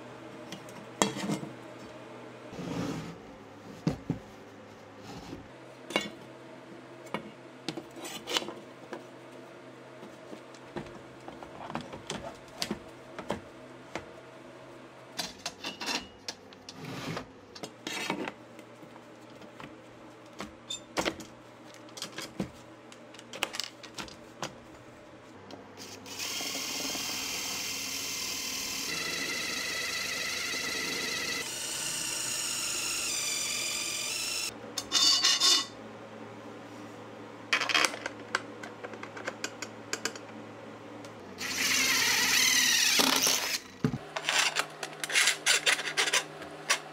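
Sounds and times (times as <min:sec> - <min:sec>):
cordless drill boring metal: 0:26.0 - 0:34.5, 0:41.4 - 0:43.6.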